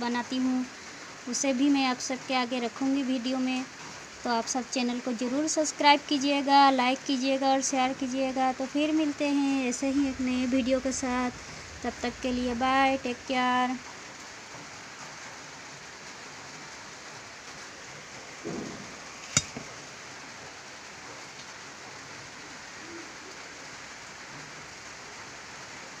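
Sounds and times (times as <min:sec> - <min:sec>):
background hiss: 0:00.0 - 0:26.0
knock: 0:18.5 - 0:18.8.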